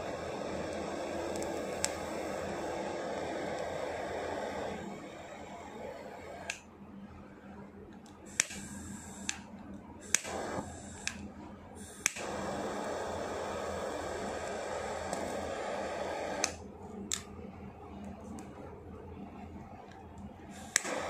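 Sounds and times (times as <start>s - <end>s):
lighter flame hissing: 0.0s - 6.7s, 8.0s - 17.4s, 20.4s - 21.0s
lighter igniter clicks: 0.6s - 3.8s, 8.0s - 17.3s, 20.5s - 21.0s.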